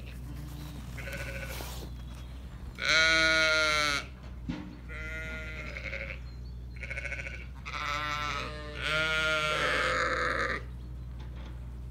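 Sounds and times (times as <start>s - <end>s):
sheep bleating: 0.0s - 1.9s, 2.8s - 4.1s, 4.9s - 6.2s, 6.8s - 10.7s.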